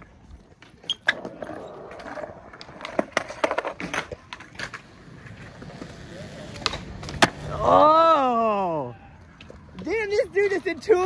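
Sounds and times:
skateboards clacking on ground: 0.0s - 7.9s, 9.2s - 11.0s
skateboards rolling on concrete: 0.0s - 11.0s.

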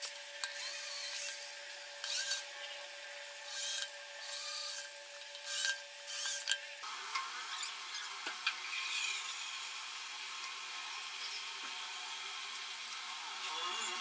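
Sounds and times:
electric drill boring plastic: 0.0s - 2.5s, 3.5s - 6.6s, 13.4s - 14.0s.

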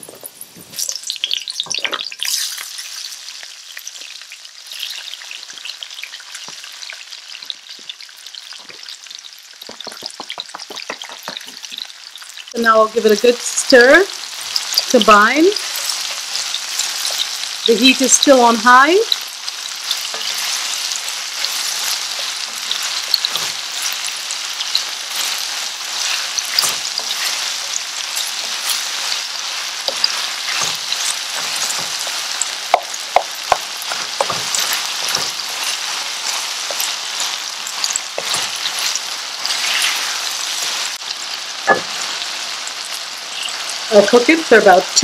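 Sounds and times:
vegetables sizzling in hot oil: 0.0s - 45.0s
wooden spoon knocking against pan: 9.6s - 11.6s, 31.7s - 35.3s.

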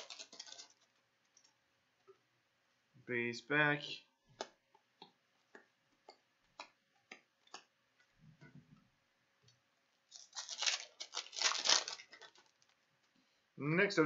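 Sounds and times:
wrapper crinkling and tearing: 0.0s - 1.0s, 10.1s - 12.8s.

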